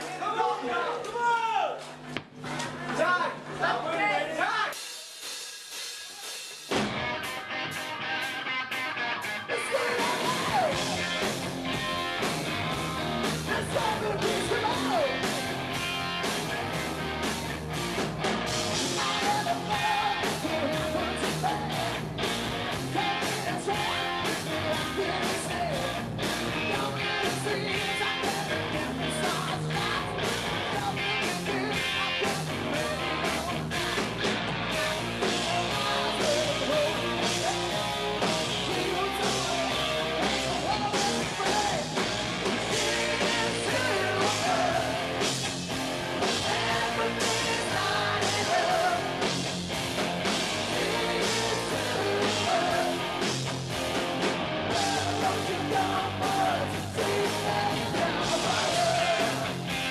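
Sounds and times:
drum kit beat: 0:04.6 - 0:59.9
distorted electric guitars: 0:04.8 - 0:59.9
bass: 0:06.2 - 0:59.9
man singing: 0:09.5 - 0:11.0, 0:13.5 - 0:15.2, 0:18.9 - 0:22.0, 0:22.8 - 0:33.9, 0:35.2 - 0:45.0, 0:46.4 - 0:49.2, 0:54.7 - 0:59.9.

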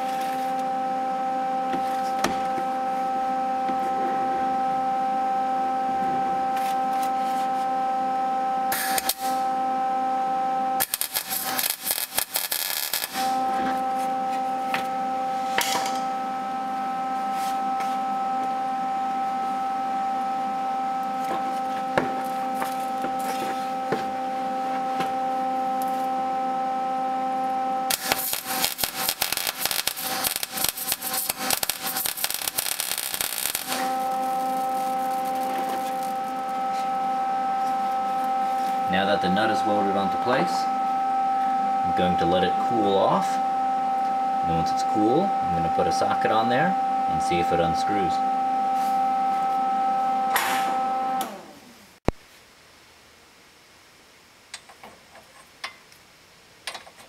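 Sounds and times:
steady high hum: 0:00.0 - 0:54.8
welder arc crackling: 0:08.7 - 0:09.4, 0:10.8 - 0:14.6, 0:27.9 - 0:40.7.

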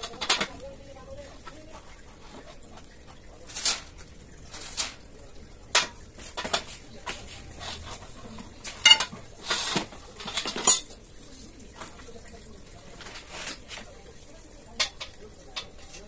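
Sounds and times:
metal shelf parts clanking: 0:03.4 - 0:05.0, 0:07.6 - 0:11.0.

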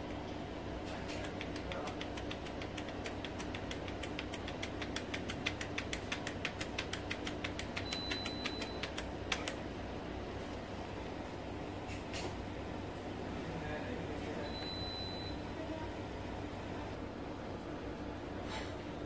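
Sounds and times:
steady low hum: 0:00.0 - 0:19.0
computer keyboard keys clicking: 0:01.0 - 0:09.6.

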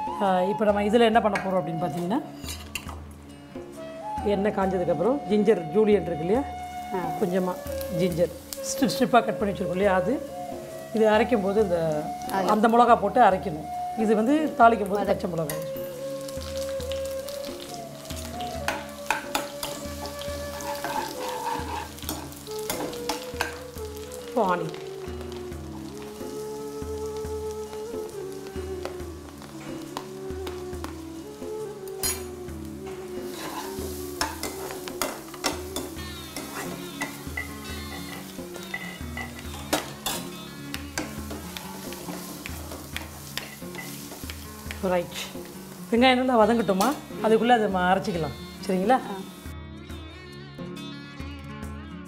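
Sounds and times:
oil sizzling in a pan: 0:04.8 - 0:49.5
spatula scraping a pan: 0:19.3 - 0:23.6, 0:33.2 - 0:40.3, 0:40.9 - 0:44.4.

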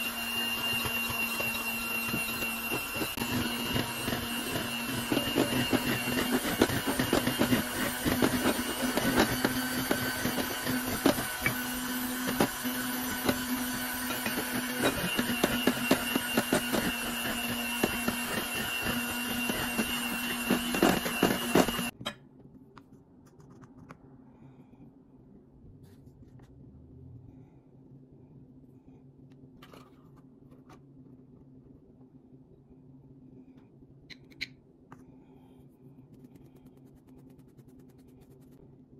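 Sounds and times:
electric hand mixer humming: 0:00.0 - 0:22.0.

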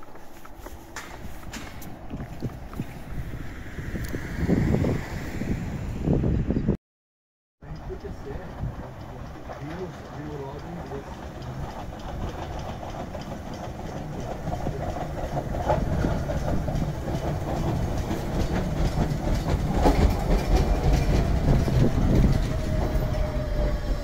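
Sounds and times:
train wheels clacking over rail joints: 0:00.6 - 0:03.0, 0:07.6 - 0:24.0.

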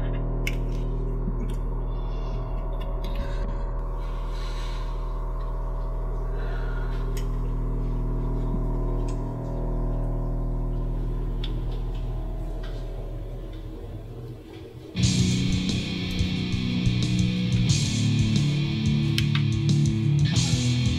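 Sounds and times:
dark ambient drone: 0:00.0 - 0:20.9.

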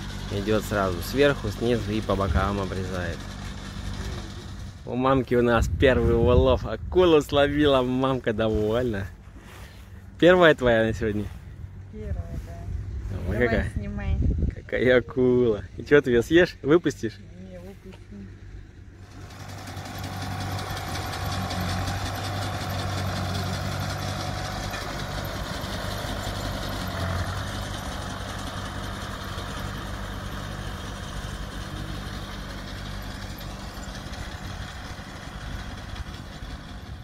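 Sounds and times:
tractor engine running: 0:00.0 - 0:13.0, 0:17.0 - 0:37.0.

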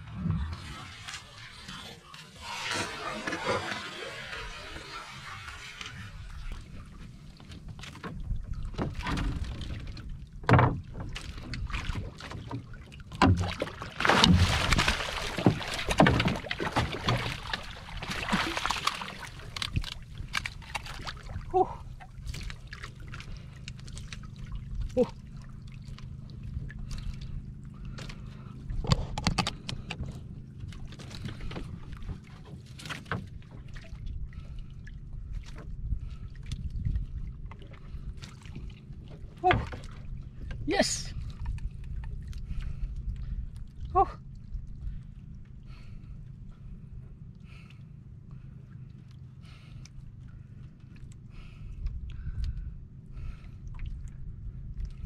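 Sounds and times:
water splashing: 0:00.0 - 0:08.0, 0:11.0 - 0:27.3, 0:38.2 - 0:41.4
low steady hum: 0:00.0 - 0:55.0
knocks against wooden boat: 0:13.2 - 0:17.3.

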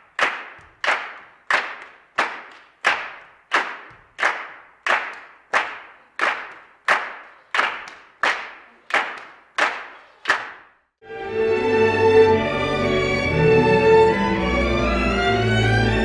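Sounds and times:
hand claps in a hall: 0:00.0 - 0:10.8
string orchestra: 0:11.0 - 0:16.0.

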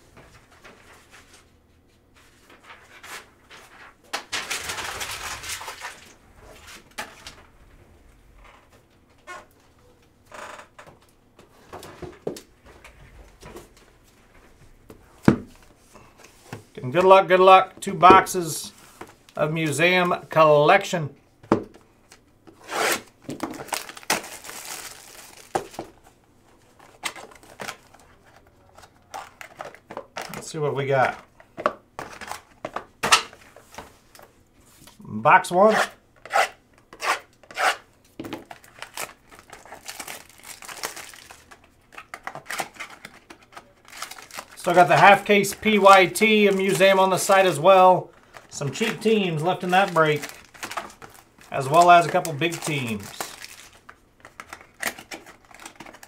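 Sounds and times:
shrink wrap crinkling and tearing: 0:03.6 - 0:07.4, 0:22.9 - 0:25.8, 0:38.4 - 0:56.0.

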